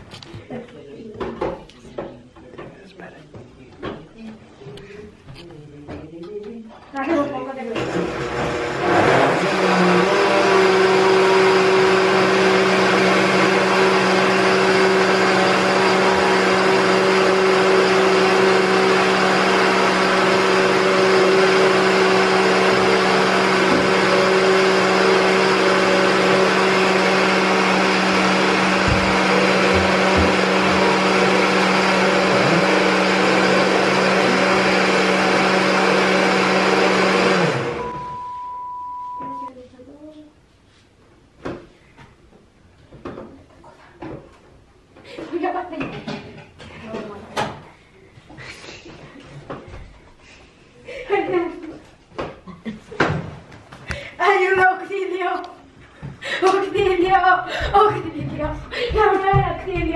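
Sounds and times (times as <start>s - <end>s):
blender motor running: 7.8s - 39.5s.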